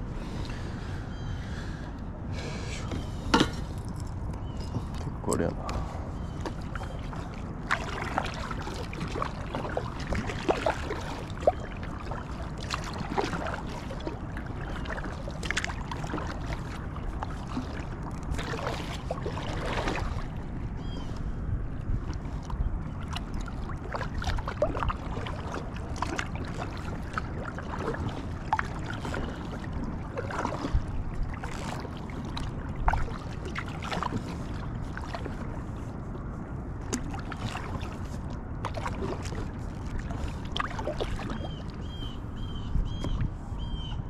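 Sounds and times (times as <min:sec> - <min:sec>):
wind rumble on microphone: 0:00.0 - 0:44.0
water splashing and dripping: 0:06.4 - 0:20.4, 0:22.0 - 0:35.5, 0:36.8 - 0:42.0.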